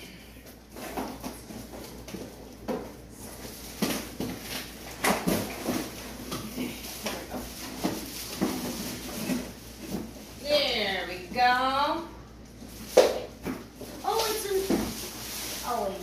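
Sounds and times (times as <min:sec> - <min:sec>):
plastic packaging crinkling: 0:03.3 - 0:10.4, 0:12.5 - 0:16.0.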